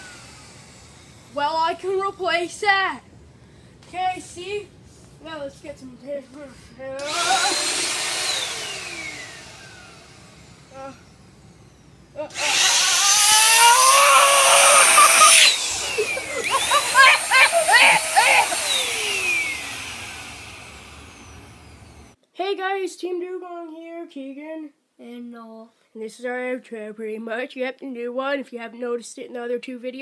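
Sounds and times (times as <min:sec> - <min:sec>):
handheld vacuum cleaner whining: 0:00.0 - 0:01.4, 0:07.0 - 0:22.2
person yelling: 0:13.3 - 0:15.5, 0:16.8 - 0:19.3.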